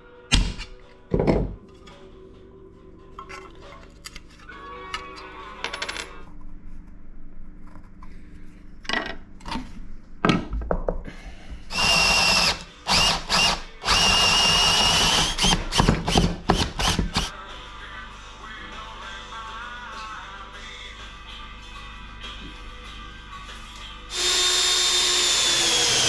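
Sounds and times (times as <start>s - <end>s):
cordless drill whining: 11.7s - 17.3s, 24.1s - 26.0s.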